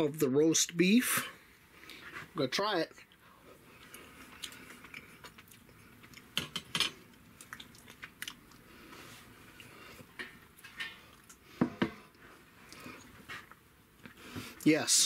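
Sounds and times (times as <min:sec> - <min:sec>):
person chewing: 0:03.7 - 0:10.2, 0:12.1 - 0:14.2.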